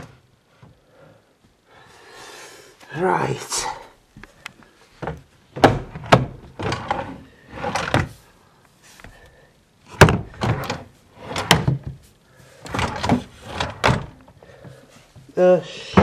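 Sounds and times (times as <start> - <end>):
drawers sliding and knocking shut: 5.0 - 8.2, 9.9 - 12.0, 12.7 - 14.2.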